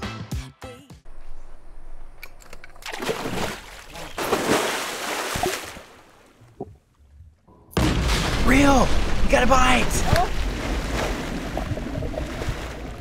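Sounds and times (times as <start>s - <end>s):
pool water splashing: 2.7s - 6.6s, 8.1s - 13.0s.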